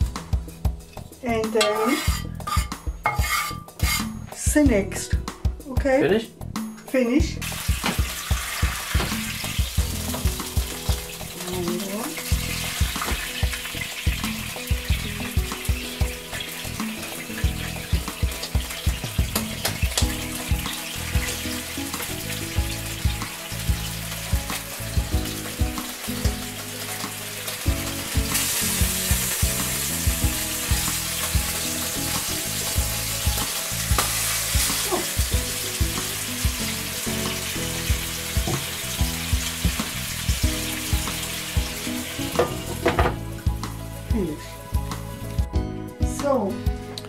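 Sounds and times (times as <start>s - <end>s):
water sizzling in hot pan: 0.0s - 4.8s, 7.3s - 45.6s.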